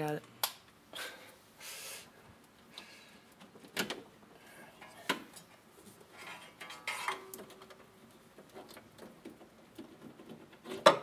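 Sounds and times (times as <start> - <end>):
metal scraping: 4.7 - 7.7.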